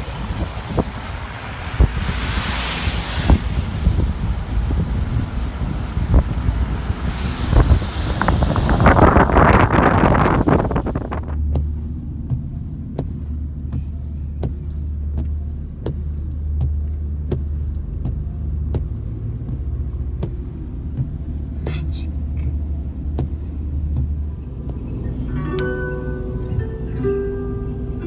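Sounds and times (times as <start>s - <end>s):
wind buffeting microphone: 0.0s - 21.6s
car cabin hum: 3.2s - 28.0s
light ticks: 11.4s - 25.2s.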